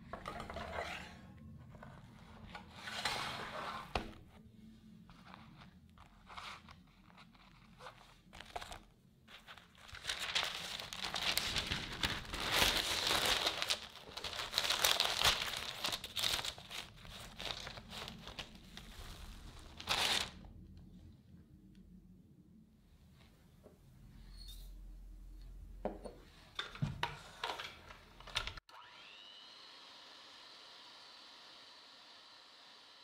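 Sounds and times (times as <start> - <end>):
parchment paper crinkling: 5.1 - 20.4.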